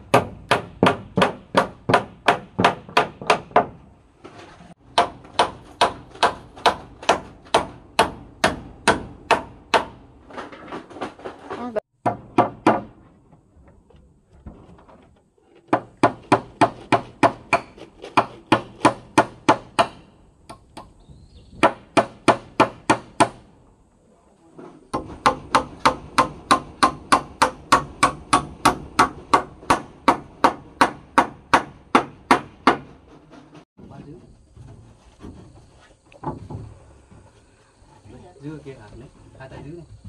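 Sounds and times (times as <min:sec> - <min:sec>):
hammer driving nails into wood: 0:00.1 - 0:03.8, 0:04.9 - 0:11.1, 0:12.0 - 0:13.0, 0:15.7 - 0:20.9, 0:21.6 - 0:23.5, 0:24.9 - 0:33.0.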